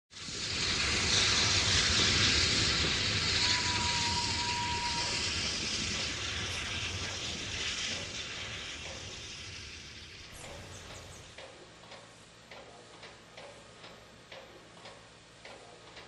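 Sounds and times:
locomotive steam hissing: 0.2s - 11.4s.

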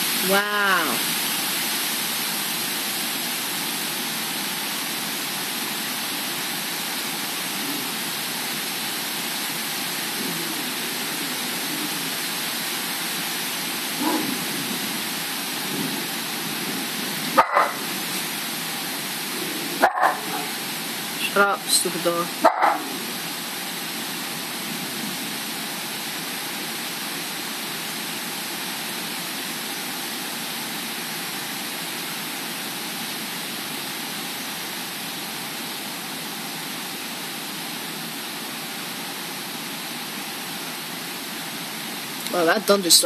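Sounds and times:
heavy rain: 0.0s - 43.0s
gusting wind: 10.0s - 21.4s
dog yipping and barking: 17.4s - 17.8s, 19.8s - 20.6s, 22.4s - 22.9s.

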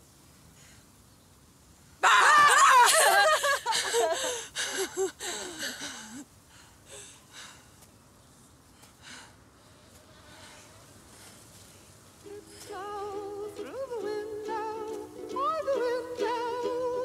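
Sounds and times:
woman yelling: 2.0s - 3.3s
woman laughing: 2.0s - 6.2s.

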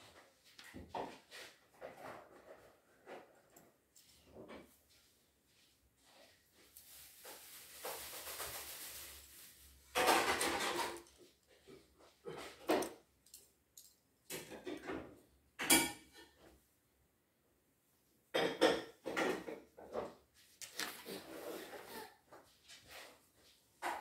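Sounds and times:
soft rustle: 2.4s - 10.0s.

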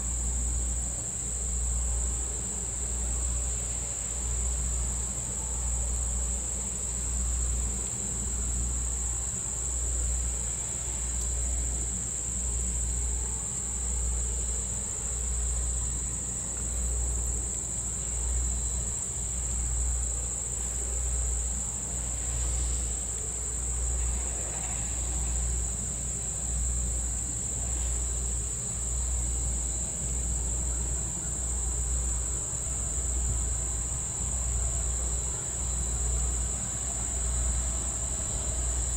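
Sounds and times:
insects droning: 0.0s - 38.9s.

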